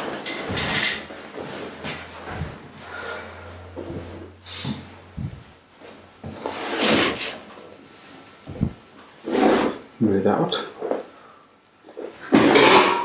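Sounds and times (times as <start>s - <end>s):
low hum: 0.6s - 6.2s
body shifting on padded table: 8.4s - 8.8s.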